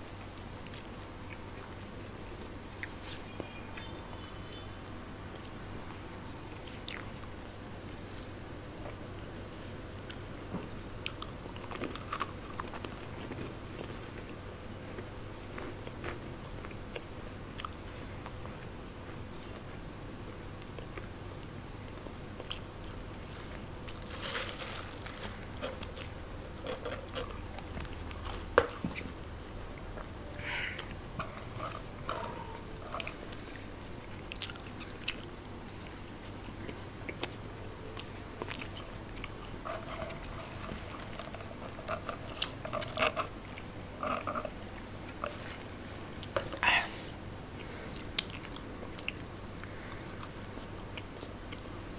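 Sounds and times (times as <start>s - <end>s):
chewing crunchy snack food: 9.9s - 19.8s, 20.5s - 30.2s, 30.8s - 46.8s, 47.6s - 51.9s.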